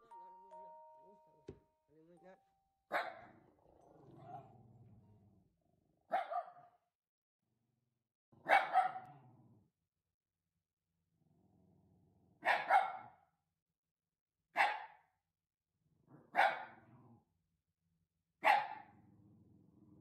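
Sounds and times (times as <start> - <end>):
dog barking: 2.9 - 3.4, 6.1 - 6.8, 8.4 - 9.2, 12.4 - 13.2, 14.6 - 15.1, 16.3 - 16.9, 18.4 - 18.9
dog growling: 3.3 - 5.5.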